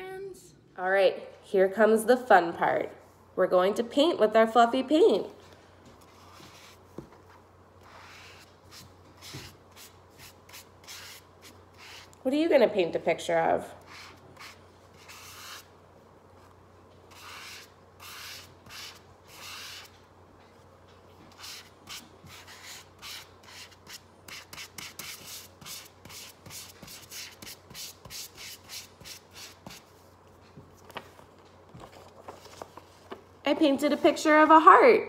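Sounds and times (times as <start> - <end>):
paintbrush swishing on paper: 6.0 - 7.0, 7.8 - 12.2.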